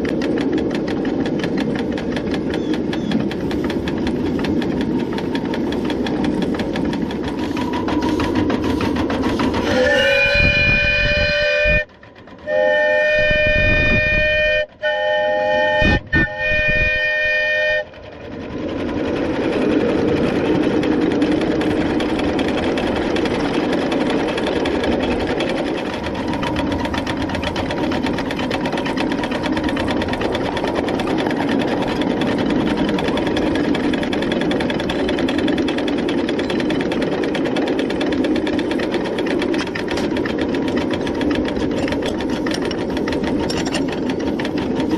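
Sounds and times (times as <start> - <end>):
steam locomotive running: 0.0 - 44.9
steam whistle: 9.6 - 17.9.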